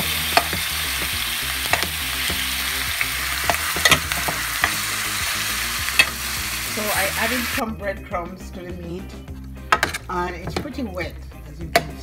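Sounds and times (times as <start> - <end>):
meat sizzling in a pot: 0.0 - 7.6.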